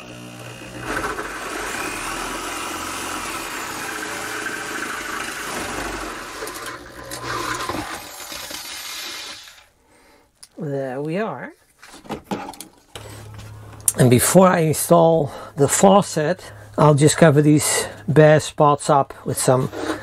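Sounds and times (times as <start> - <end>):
electric drill boring through plywood: 0.0 - 9.7.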